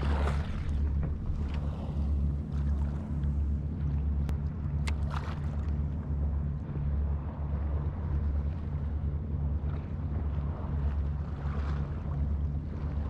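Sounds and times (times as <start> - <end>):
sea water washing against seawall: 0.0 - 2.1.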